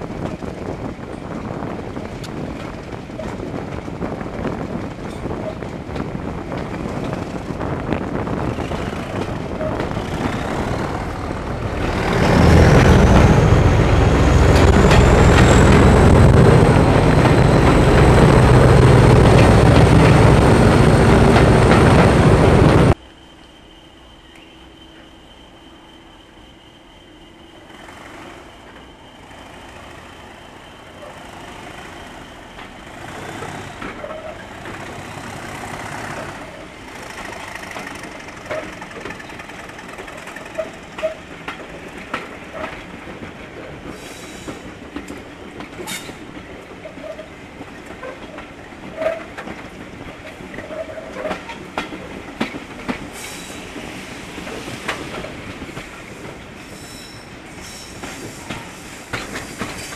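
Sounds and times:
wheels clicking over rail joints: 0.0s - 13.4s, 31.0s - 59.9s
train running noise: 0.0s - 59.9s
wheel squeals: 23.8s - 42.9s, 45.8s - 49.4s, 50.2s - 51.6s, 56.6s - 59.9s.

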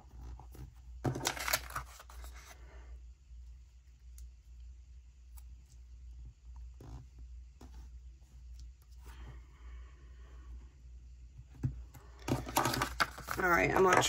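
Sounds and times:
paper rustling and crinkling: 1.0s - 2.6s, 12.2s - 14.0s.

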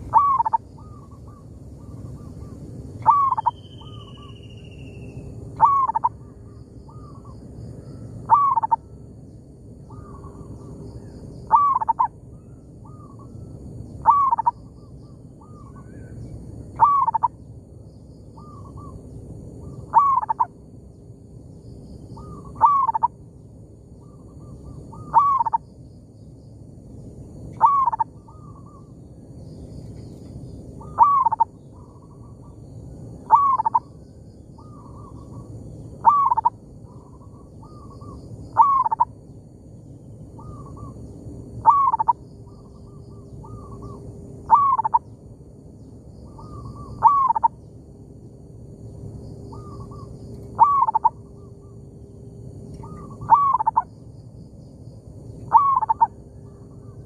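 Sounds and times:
doves cooing: 0.0s - 4.3s, 5.6s - 6.2s, 8.2s - 8.9s, 11.5s - 12.1s, 14.0s - 14.6s, 16.7s - 17.3s, 19.6s - 20.5s, 22.2s - 23.1s, 24.4s - 25.6s, 27.6s - 28.8s, 30.8s - 32.6s, 33.2s - 34.0s, 34.6s - 39.1s, 41.6s - 45.0s, 46.3s - 47.5s, 49.5s - 51.8s, 52.8s - 53.8s, 55.5s - 57.0s.

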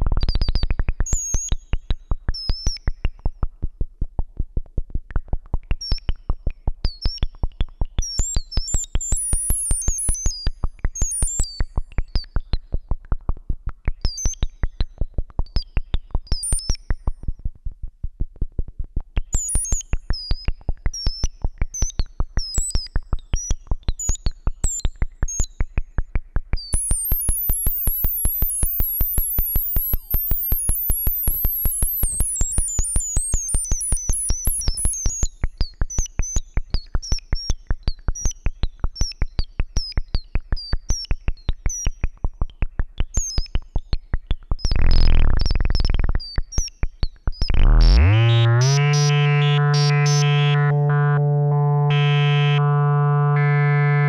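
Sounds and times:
synth filter pinging on clicks: 26.8s - 35.2s, 47.3s - 54.0s.

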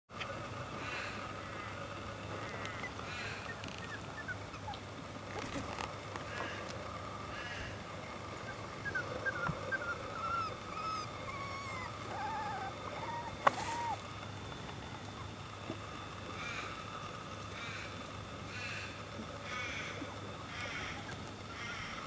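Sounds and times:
puppies squeaking and whimpering: 2.4s - 5.8s, 8.4s - 14.0s.

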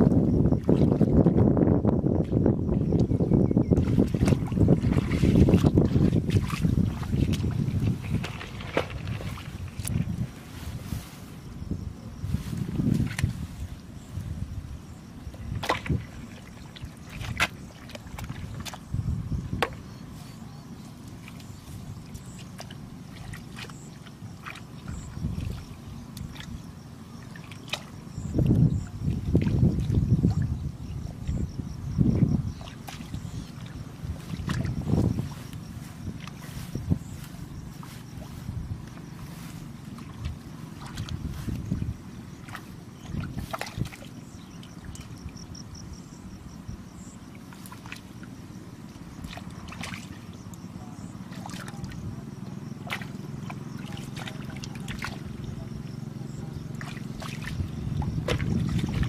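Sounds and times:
hands sloshing in muddy water: 0.0s - 59.0s
sharp wet splashes: 3.8s - 11.1s, 15.4s - 18.9s, 21.0s - 30.6s, 32.5s - 45.4s, 47.2s - 59.0s.

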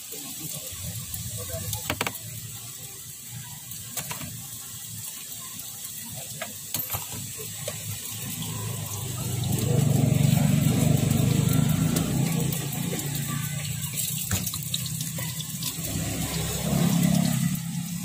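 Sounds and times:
low engine rumble: 8.2s - 18.0s.

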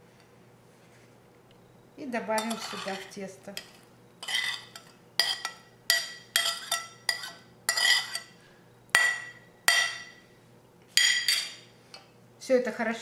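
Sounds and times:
metal spoon clinking on plate: 2.4s - 8.3s, 11.0s - 11.6s
spoon scraping plate: 2.4s - 8.4s.

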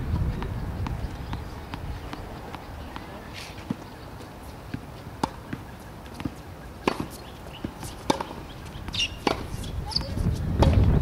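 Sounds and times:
tennis ball bouncing: 0.1s - 10.9s
racket hitting ball: 4.7s - 10.9s.

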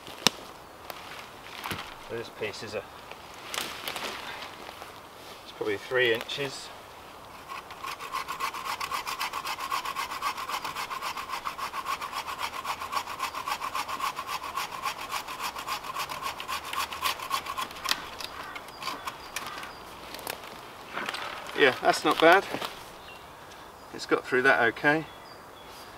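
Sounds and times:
bow saw cutting branch: 7.3s - 23.0s.

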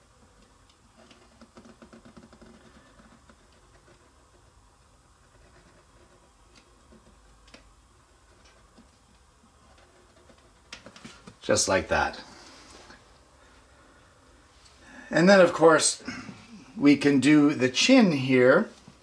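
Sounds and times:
pencil scratching on paper: 1.0s - 7.4s.

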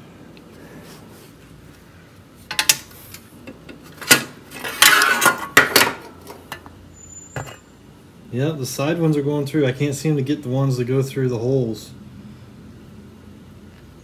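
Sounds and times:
metallic clanks: 3.5s - 6.7s
metal scraping rattle: 4.0s - 6.6s.

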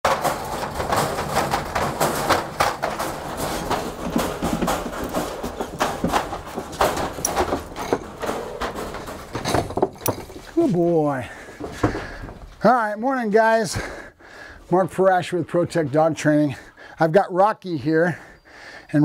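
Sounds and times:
dog claws on wooden floor: 0.0s - 10.5s
wire dog crate rattling: 0.0s - 10.6s.

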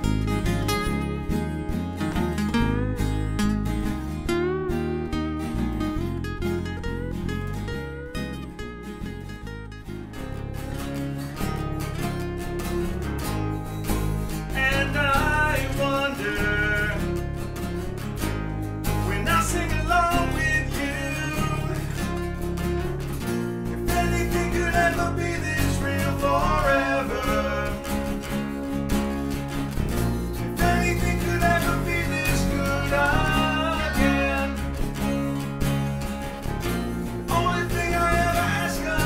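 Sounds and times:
acoustic guitar strummed and picked: 0.0s - 39.0s
person singing: 14.5s - 17.4s, 19.0s - 22.4s, 23.7s - 28.4s, 30.5s - 35.1s, 37.2s - 39.0s.

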